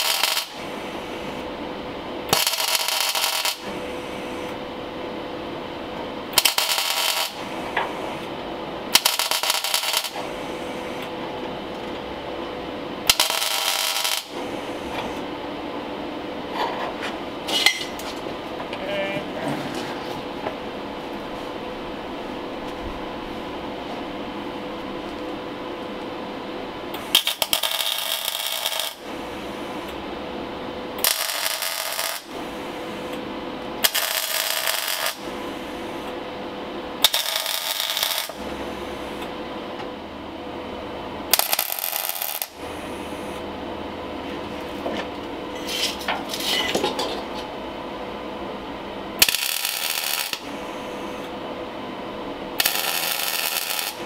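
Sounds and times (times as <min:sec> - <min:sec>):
welding arc crackling: 0:00.0 - 0:01.4, 0:02.2 - 0:04.6, 0:06.3 - 0:08.3, 0:08.9 - 0:11.0, 0:13.0 - 0:15.2, 0:26.9 - 0:30.0, 0:31.0 - 0:33.2, 0:33.8 - 0:35.4, 0:37.0 - 0:38.6, 0:41.3 - 0:43.0, 0:49.2 - 0:51.1, 0:52.4 - 0:54.0
welder hum: 0:00.0 - 0:16.1, 0:17.0 - 0:54.0.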